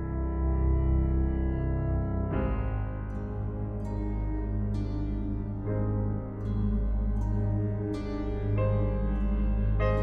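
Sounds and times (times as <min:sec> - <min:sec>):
instrumental music with sustained chords: 0:00.0 - 0:10.0.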